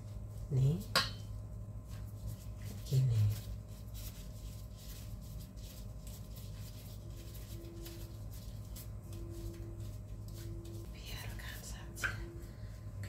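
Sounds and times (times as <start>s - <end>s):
steady low hum: 0.0s - 13.0s
plastic glove rustling: 1.4s - 10.9s.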